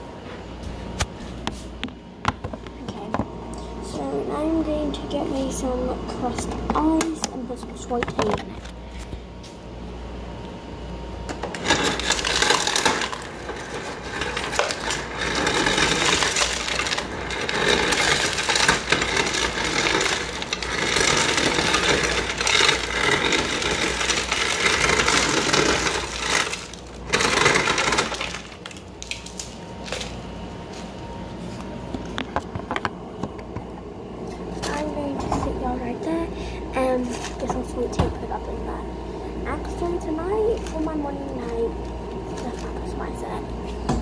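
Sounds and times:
ice clattering into plastic cup: 11.4 - 30.1.

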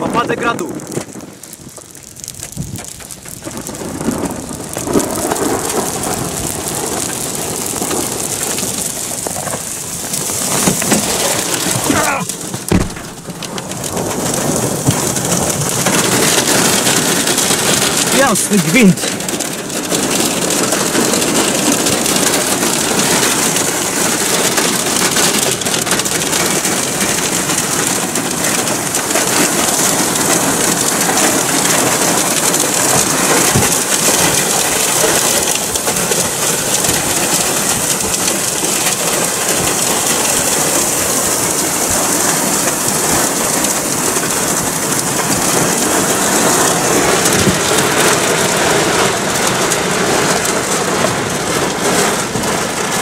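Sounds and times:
heavy rain pelting car: 0.0 - 53.0.

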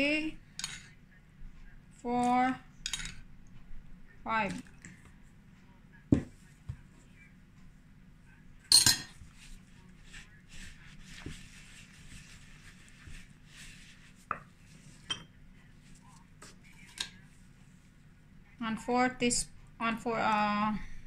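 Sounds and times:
metal spoon clattering on bowl: 2.8 - 3.2, 8.7 - 9.2
wooden spoon stirring batter: 9.1 - 18.0.

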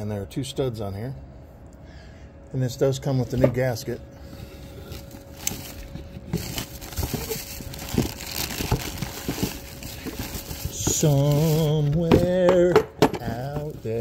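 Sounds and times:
faint steady hum: 0.0 - 14.0
plastic wrapping crinkling: 4.8 - 12.5
cardboard box rummaging: 4.8 - 14.0.

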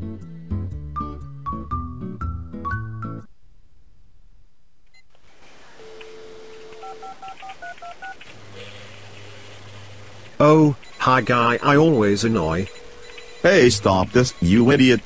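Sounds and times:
telephone dial tone: 5.8 - 8.2
touch-tone keypad beeps: 5.8 - 8.2, 10.8 - 15.0.

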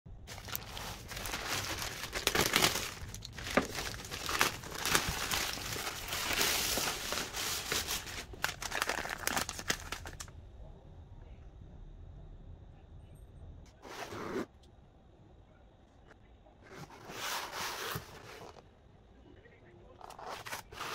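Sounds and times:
plastic bag rustling and crinkling: 0.2 - 10.3, 20.1 - 20.9.

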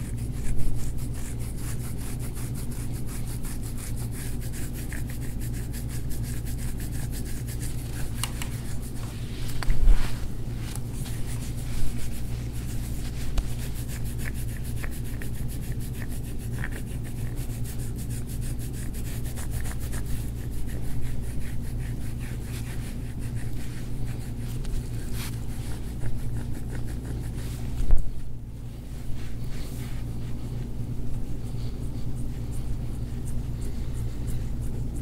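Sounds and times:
scraping tool rubbing over oiled skin: 0.0 - 27.9
steady low hum: 0.0 - 35.0.

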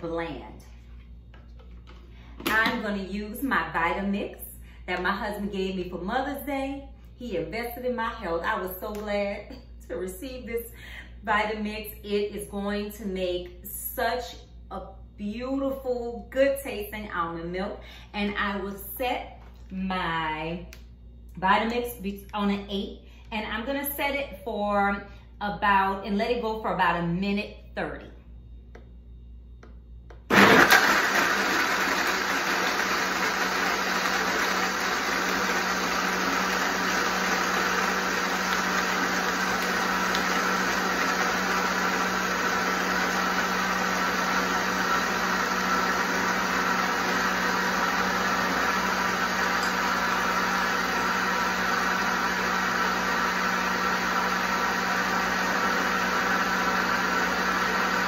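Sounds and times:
blender running: 30.3 - 58.0.

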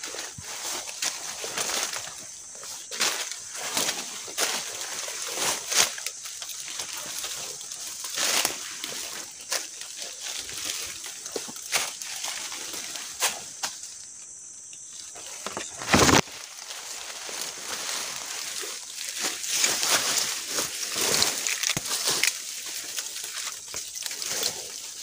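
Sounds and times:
footsteps crunching on dry leaves: 0.0 - 14.0, 15.1 - 25.0
branches brushing against body: 15.0 - 25.0.

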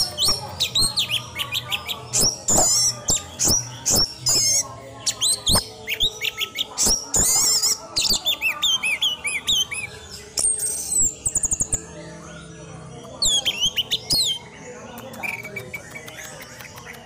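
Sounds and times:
thrush singing: 0.0 - 17.0
bird clicks: 13.1 - 17.0.

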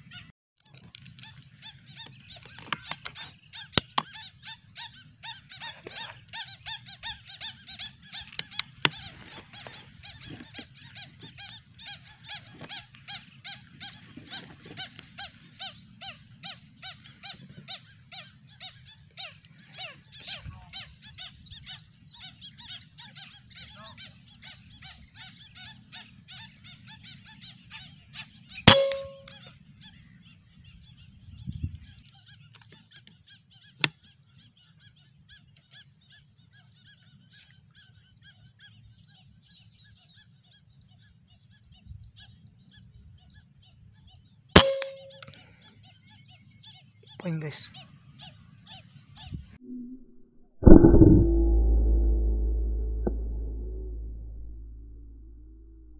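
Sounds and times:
honking bird calls: 0.0 - 30.1, 44.6 - 49.4
air rifle shots: 28.7 - 29.3.

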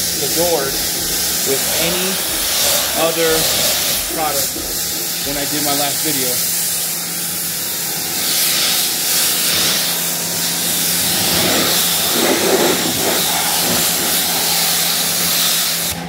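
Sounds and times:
low hum: 0.0 - 5.6, 10.2 - 16.0
pressure washer spraying water: 0.0 - 16.0.

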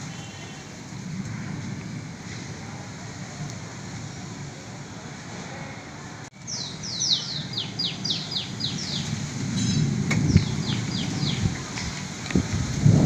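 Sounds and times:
wind and rain noise: 0.0 - 13.0
bird chirping: 6.4 - 11.6.

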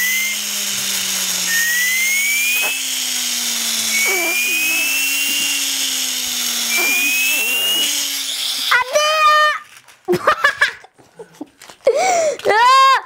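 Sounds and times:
toy turbo whirring and whistling: 0.0 - 9.8.

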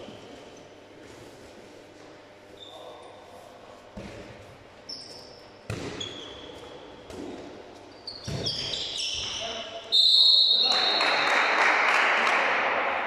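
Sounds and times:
sports shoes squeaking on floor: 2.5 - 3.0, 4.8 - 11.0
ball bouncing and thudding: 4.0 - 4.4, 5.6 - 6.2, 7.0 - 9.3.

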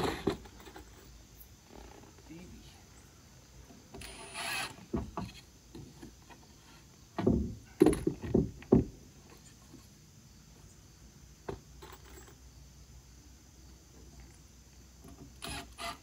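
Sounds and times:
wood scraping: 0.0 - 2.4, 3.6 - 10.0
wood knocking on wooden deck: 4.9 - 5.9, 7.2 - 9.0.

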